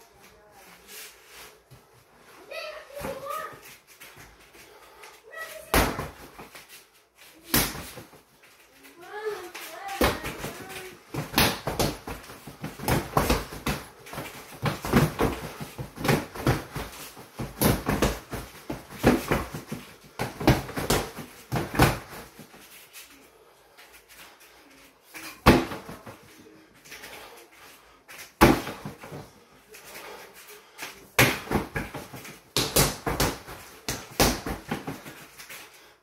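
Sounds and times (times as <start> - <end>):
punches thudding on punching bag: 5.7 - 6.4, 7.5 - 8.1, 10.0 - 22.3, 25.4 - 26.1, 28.4 - 29.2, 31.2 - 35.1.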